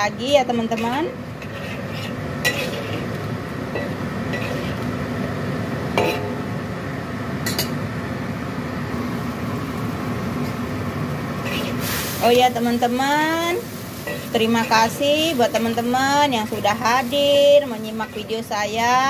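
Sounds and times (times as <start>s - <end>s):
ladle scraping and clinking in wok: 0.6s - 4.9s, 11.4s - 12.4s, 13.7s - 18.4s
soup boiling hiss: 0.8s - 5.5s, 9.0s - 19.0s.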